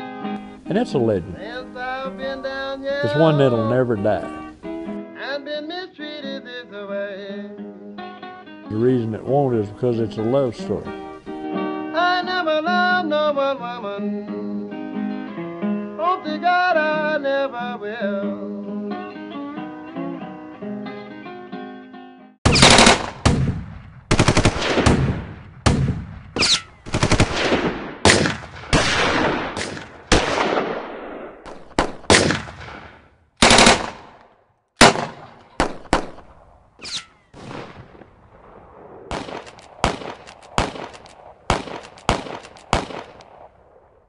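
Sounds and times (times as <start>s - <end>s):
blues guitar music: 0.0s - 22.4s
gunfire bursts and shots: 22.4s - 43.8s.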